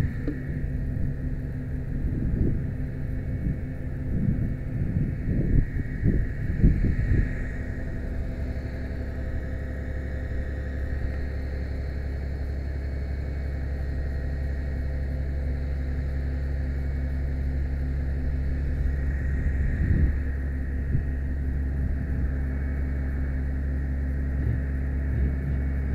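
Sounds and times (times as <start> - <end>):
wind buffeting microphone: 0.0 - 9.7, 18.5 - 23.4, 24.2 - 25.9
faint high whine: 0.0 - 25.9
truck engine and hydraulics hum: 0.0 - 25.9.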